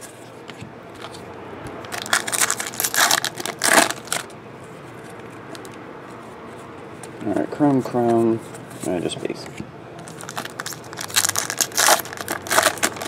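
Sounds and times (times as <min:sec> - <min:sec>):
foil wrapper crinkling and tearing: 0:01.9 - 0:04.3, 0:10.0 - 0:13.0.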